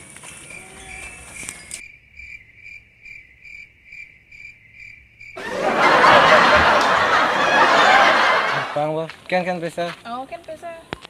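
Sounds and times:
cricket chirping: 0.0 - 5.4.

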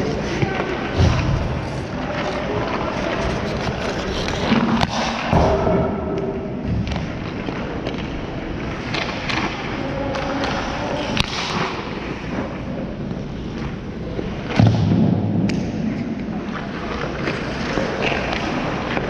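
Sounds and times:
low background noise: 0.0 - 19.0
heavy thud: 4.9 - 7.2.

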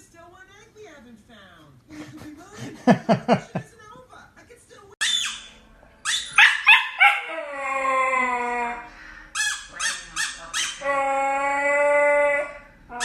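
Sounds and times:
puppy yipping: 5.0 - 7.5
puppy howling: 6.2 - 8.9, 10.6 - 13.0.

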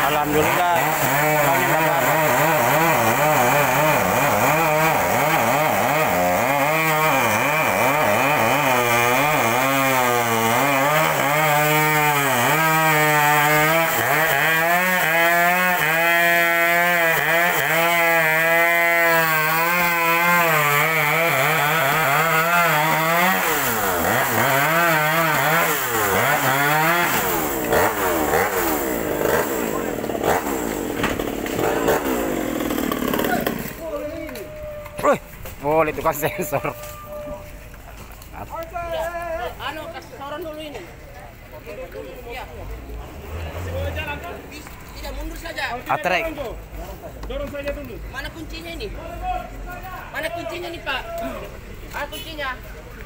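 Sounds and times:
chainsaw cutting wood: 0.0 - 33.9.

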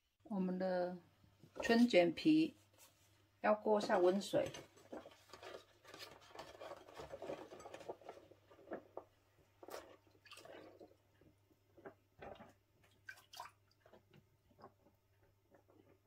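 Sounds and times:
water splashing and dripping: 9.6 - 11.0, 12.2 - 14.7.

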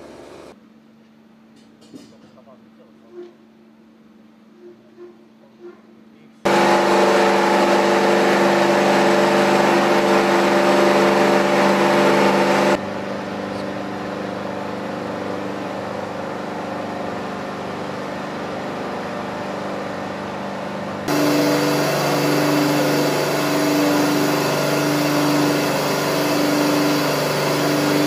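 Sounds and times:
heavy machinery droning: 6.5 - 28.0.

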